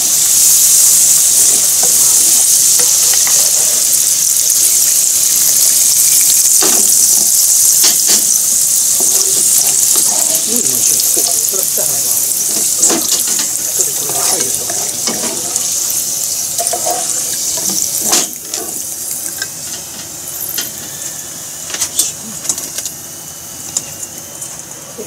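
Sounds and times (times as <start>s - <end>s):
oil sizzling and crackling in a pan: 0.0s - 24.8s.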